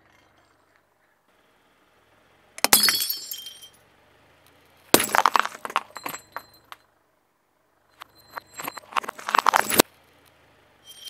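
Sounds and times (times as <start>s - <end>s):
ceramic shards ringing and scattering: 2.6s - 3.8s, 5.0s - 6.8s
car tyre crushing ceramic: 4.8s - 6.8s, 8.0s - 9.9s.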